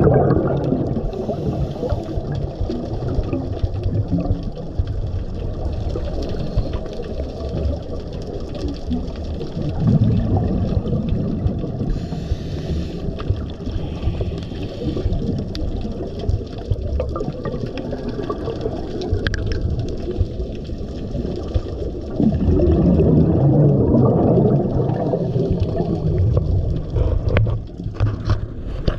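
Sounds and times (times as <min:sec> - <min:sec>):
muffled underwater water noise: 0:00.0 - 0:28.9
scuba exhalation bubbles: 0:00.0 - 0:28.9
faint clicks: 0:12.6 - 0:21.9.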